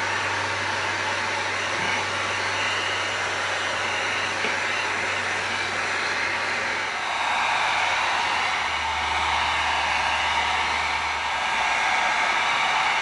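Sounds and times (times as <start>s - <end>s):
heat gun blowing: 0.0s - 9.4s.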